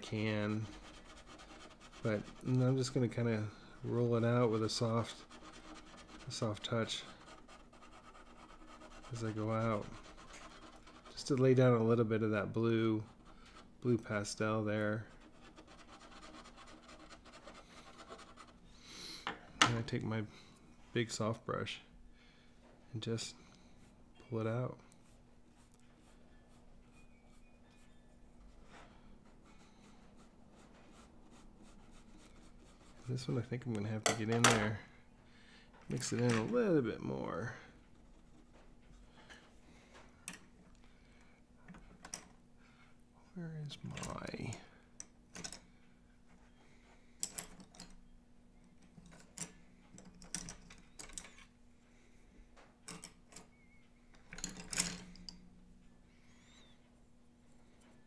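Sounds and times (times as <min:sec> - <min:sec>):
low steady hum: 0:00.0 - 0:58.0
pencils clicking and clattering: 0:49.0 - 0:51.4.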